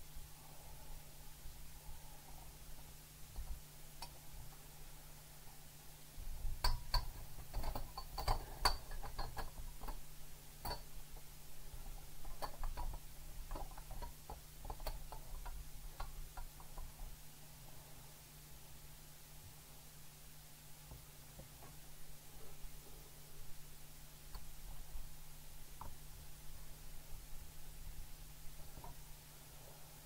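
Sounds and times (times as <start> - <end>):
plastic parts clicking and knocking: 6.6 - 10.0, 11.8 - 17.0.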